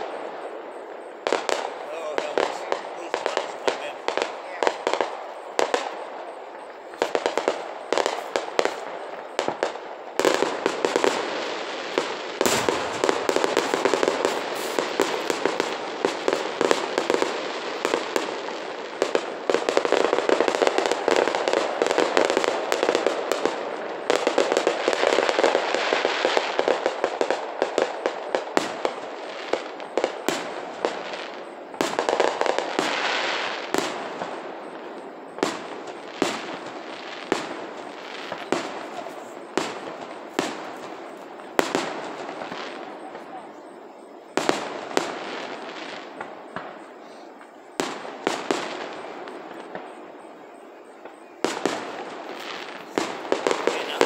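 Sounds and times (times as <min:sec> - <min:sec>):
fireworks bursting and crackling: 0:00.0 - 0:54.0
heavy firework boom: 0:10.4 - 0:18.4.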